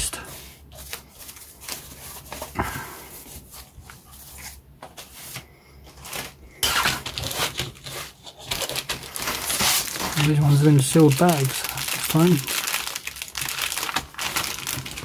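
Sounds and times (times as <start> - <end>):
plastic sprues rustling and tapping: 3.4 - 15.0
plastic bag crinkling: 6.0 - 15.0.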